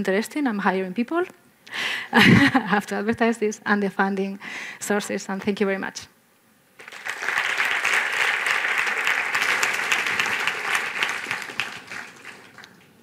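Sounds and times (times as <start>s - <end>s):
audience applauding: 6.8s - 13.0s.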